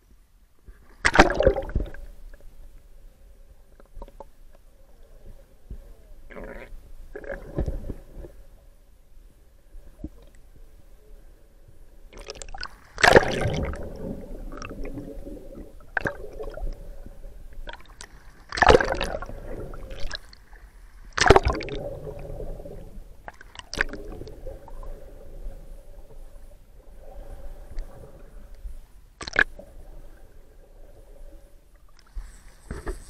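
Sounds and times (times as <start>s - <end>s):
faint steady hum: 0.0s - 33.0s
underwater splashing and bubbling: 1.0s - 2.4s, 6.3s - 8.5s, 12.1s - 28.5s, 29.2s - 33.0s.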